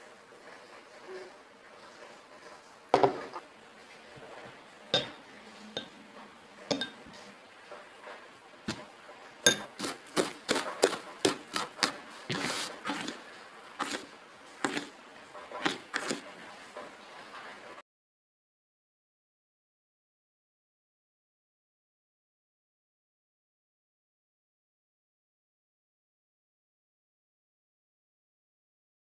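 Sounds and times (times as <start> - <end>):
fork clinking against bowl: 5.0 - 5.2, 6.7 - 7.0, 9.4 - 11.9
fork scraping bowl: 9.5 - 17.0.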